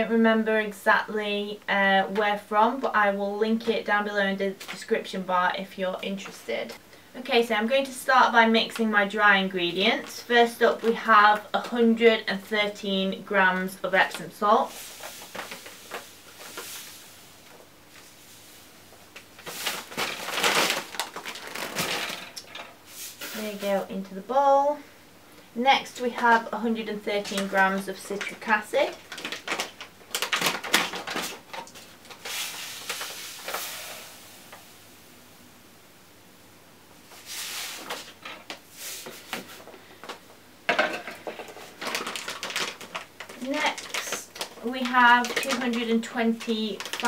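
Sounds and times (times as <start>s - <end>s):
plastic bag rustling: 13.8s - 24.0s, 26.2s - 34.8s, 37.0s - 47.0s
pouch crinkling: 14.6s - 17.2s, 18.0s - 22.5s, 26.9s - 33.9s, 41.3s - 47.0s
powder pouring: 14.6s - 18.8s, 19.4s - 22.2s, 27.2s - 34.8s, 37.1s - 39.6s
salt pouring into bowl: 32.3s - 34.8s, 37.2s - 37.9s.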